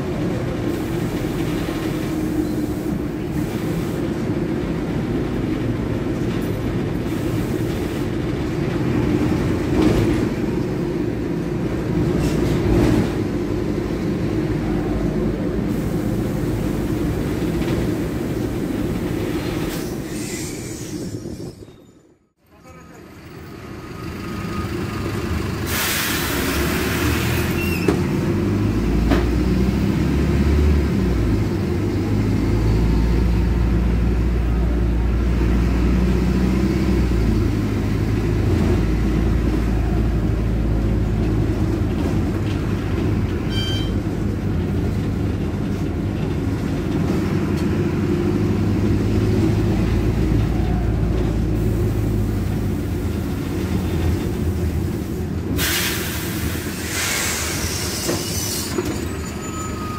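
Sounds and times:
bus diesel engine drone: 0.0 - 59.9
burst of hiss: 55.6 - 58.7.

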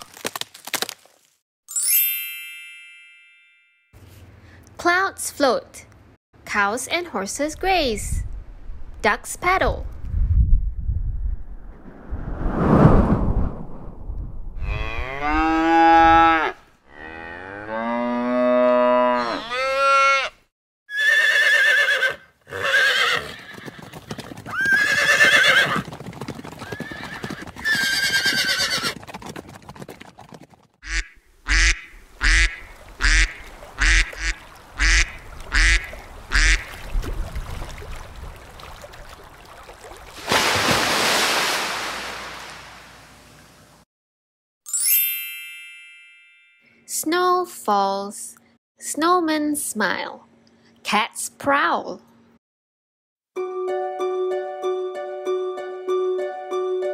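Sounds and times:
brief rush of noise: 11.7 - 14.6
cow mooing: 14.6 - 20.3
horse neighing: 20.9 - 25.8, 26.6 - 29.0.

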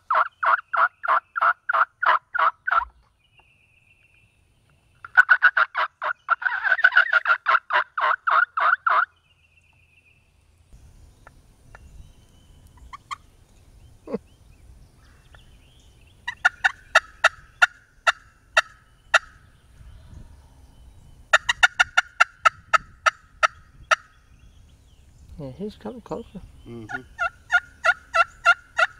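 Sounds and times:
turkey gobbling: 0.0 - 3.0, 5.0 - 9.1, 12.7 - 13.3, 16.2 - 19.4, 21.3 - 24.1, 26.8 - 28.9.

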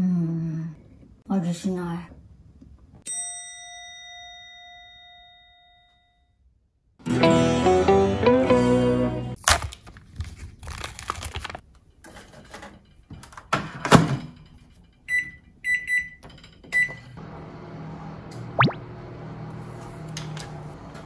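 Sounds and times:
plastic film crinkling: 9.4 - 11.6
microwave oven humming: 16.7 - 21.0.

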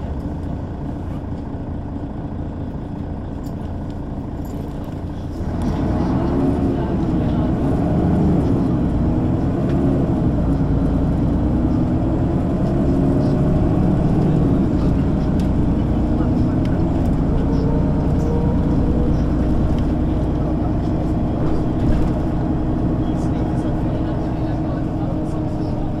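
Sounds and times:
bus engine rumble: 0.0 - 26.0.

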